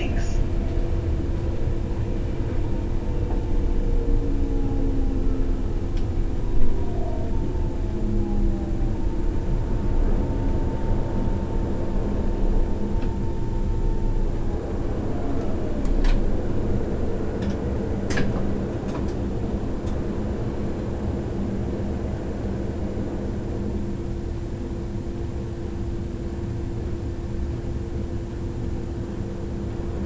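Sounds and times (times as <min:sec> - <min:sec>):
train drive whining down: 0:00.0 - 0:23.9
mechanical rumble and hum: 0:00.0 - 0:30.0.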